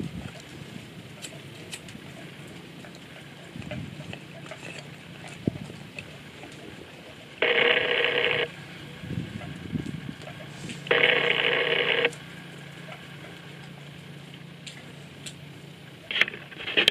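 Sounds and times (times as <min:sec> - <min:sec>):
steady low hum: 0:00.0 - 0:16.9
phone ringing: 0:07.4 - 0:08.7, 0:10.9 - 0:12.2.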